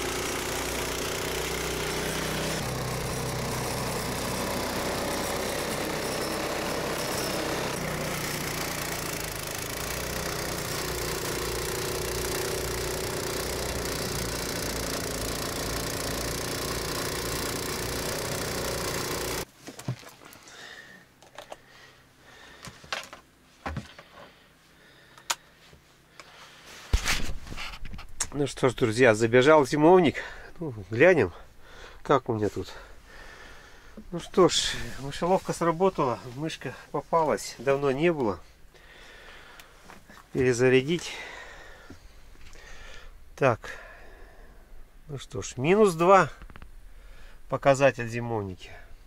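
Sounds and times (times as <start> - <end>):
snowblower engine running: 0.0 - 19.5.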